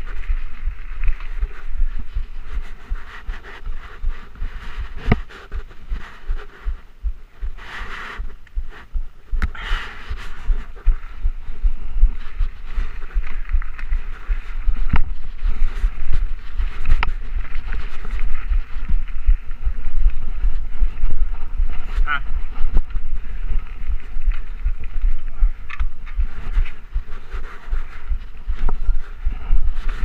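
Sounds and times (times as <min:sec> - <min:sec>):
bike rattling: 0:00.0 - 0:03.2, 0:09.5 - 0:30.0
low thumping bumps on microphone: 0:00.0 - 0:30.0
tyre noise on dirt: 0:00.0 - 0:30.0.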